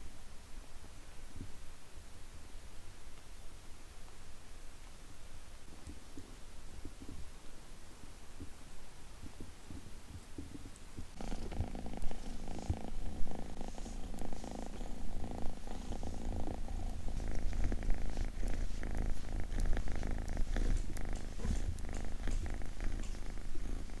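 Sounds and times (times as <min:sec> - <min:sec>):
kitten purring: 0:09.3 - 0:24.0.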